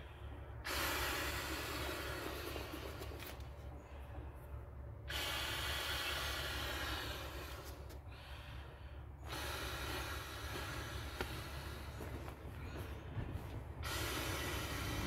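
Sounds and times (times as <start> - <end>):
breath blown into valve: 0.6 - 2.9, 5.1 - 7.8, 9.3 - 11.9, 13.8 - 15.0.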